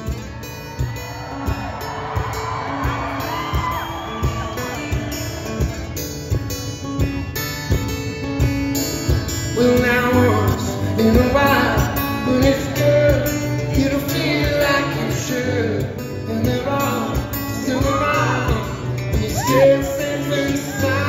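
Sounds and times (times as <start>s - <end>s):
acoustic guitar playing: 0.0s - 21.0s
man singing: 9.4s - 21.0s.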